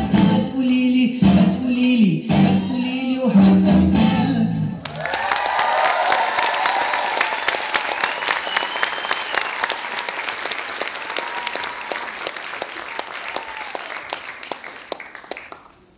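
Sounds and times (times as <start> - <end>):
audience applauding: 4.8 - 15.9
drawn-out cheers: 4.9 - 10.0, 10.9 - 14.2.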